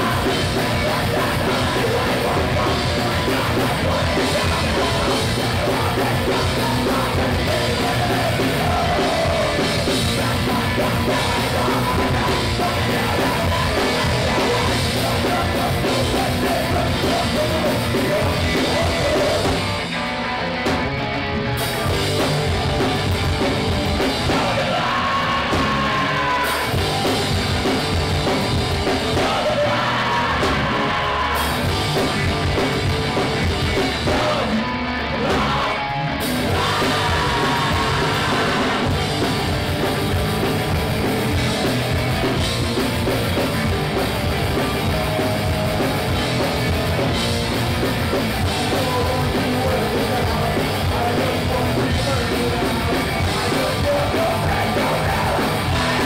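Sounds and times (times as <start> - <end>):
singer yelling vocals: 0.0 - 19.8, 24.2 - 26.8, 28.9 - 32.3, 33.8 - 39.5, 48.4 - 56.0
drum kit: 0.0 - 56.0
loud electric guitars: 0.0 - 56.0.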